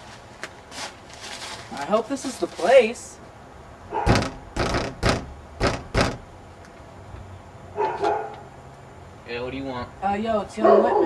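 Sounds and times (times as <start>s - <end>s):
knuckles knocking on wooden door: 4.1s - 6.3s.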